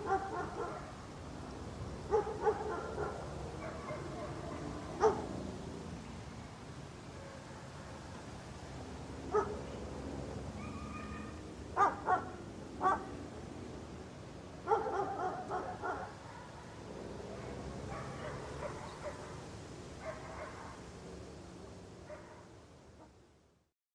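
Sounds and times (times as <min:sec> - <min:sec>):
dog barking: 0:00.0 - 0:01.0, 0:02.1 - 0:05.3, 0:07.2 - 0:08.0, 0:09.3 - 0:09.6, 0:10.6 - 0:13.1, 0:14.6 - 0:19.4, 0:20.0 - 0:20.8, 0:22.0 - 0:23.1
low outdoor background noise: 0:00.0 - 0:23.7.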